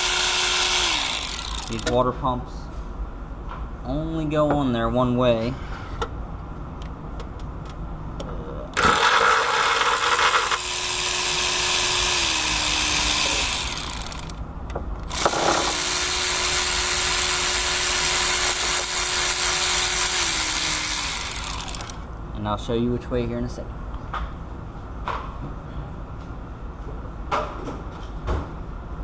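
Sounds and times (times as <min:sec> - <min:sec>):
power ratchet running: 0:00.0 - 0:02.0, 0:08.8 - 0:14.4, 0:15.1 - 0:22.0.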